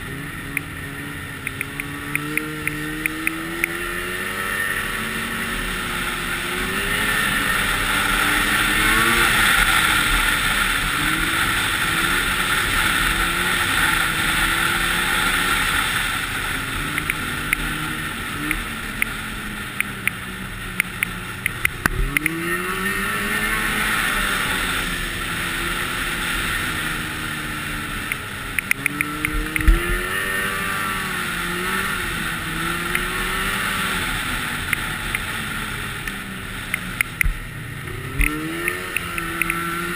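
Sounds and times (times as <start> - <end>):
snowmobile engine running: 0.0 - 39.9
wind and track noise: 0.0 - 39.9
sharp clicks and knocks: 28.1 - 29.9, 36.7 - 37.4, 38.2 - 39.6.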